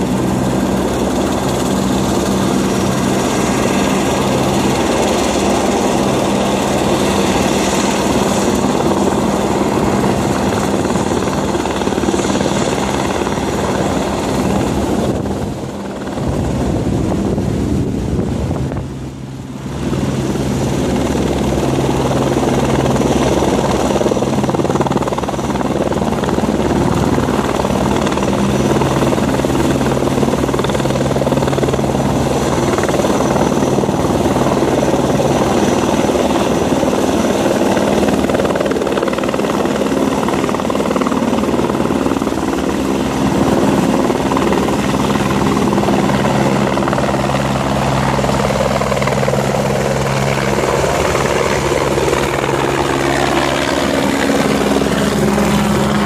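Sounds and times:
helicopter rotor and engine: 0:00.0 - 0:56.0.

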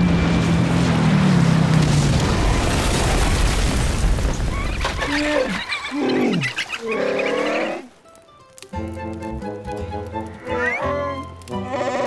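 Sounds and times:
heavy water splash: 0:00.0 - 0:05.6.

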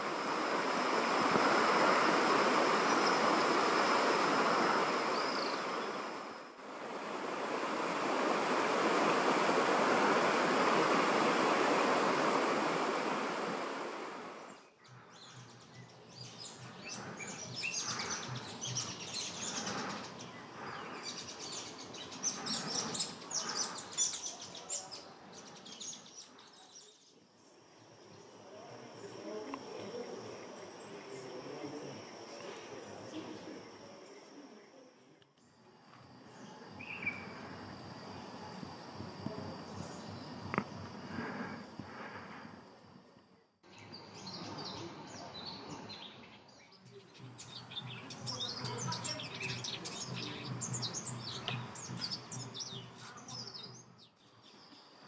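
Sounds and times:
water rushing over rocks: 0:00.0 - 0:14.5.

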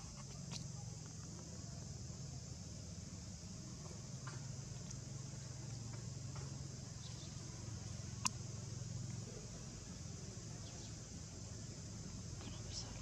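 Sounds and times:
faint insect chirping: 0:00.0 - 0:13.0.

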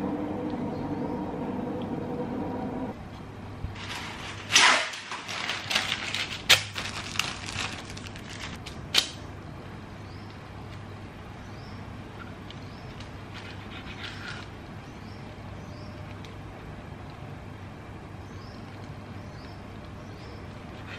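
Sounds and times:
low steady hum: 0:00.0 - 0:20.9
paper rustling and crackling: 0:03.8 - 0:09.2.

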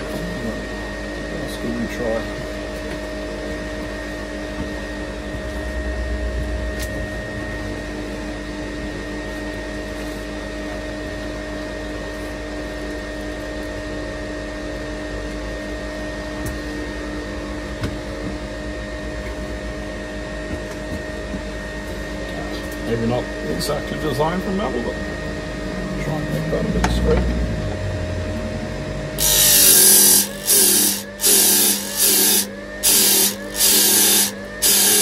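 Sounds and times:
disc sander motor whine: 0:00.0 - 0:13.0, 0:13.7 - 0:35.0
low rumble: 0:04.8 - 0:09.4, 0:24.7 - 0:29.2.

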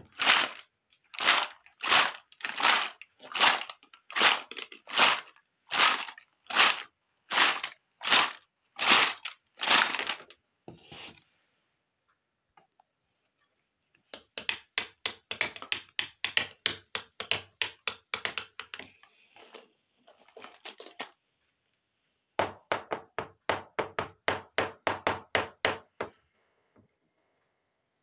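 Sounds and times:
plastic toy pieces tapping: 0:14.1 - 0:18.9.

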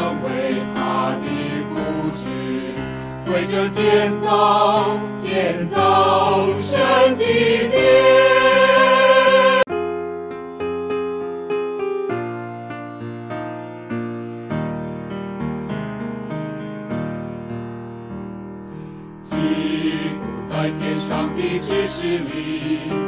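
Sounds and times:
choir singing a hymn: 0:00.0 - 0:09.7, 0:19.2 - 0:23.0
keyboard playing: 0:05.8 - 0:12.4.

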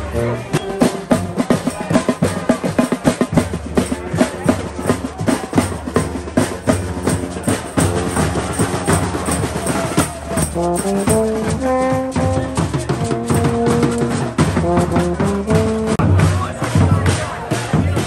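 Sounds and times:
fast busy drums: 0:00.0 - 0:18.0
horns playing held notes: 0:07.7 - 0:16.1.

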